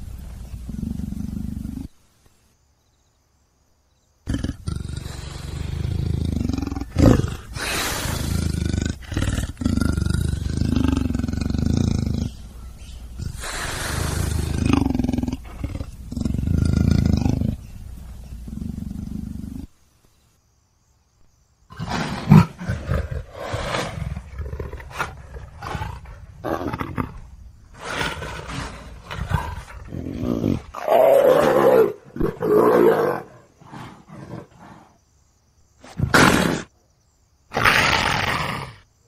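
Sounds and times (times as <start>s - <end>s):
big cat growling and roaring: 4.3s - 19.7s, 21.7s - 35.0s.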